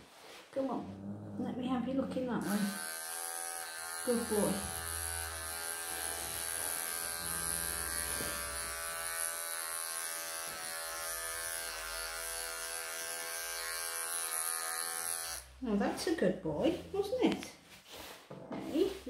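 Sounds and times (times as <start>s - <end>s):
electric clippers buzzing: 2.4s - 15.5s.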